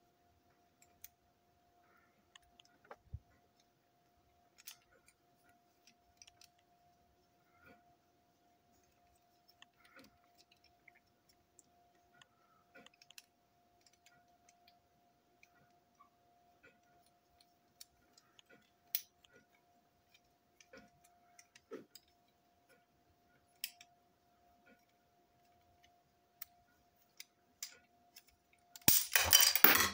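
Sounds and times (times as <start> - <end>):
faint steady hum: 0.0 - 29.9
small plastic parts clicking: 2.3 - 6.8, 8.8 - 16.0, 16.6 - 22.4, 23.4 - 24.0.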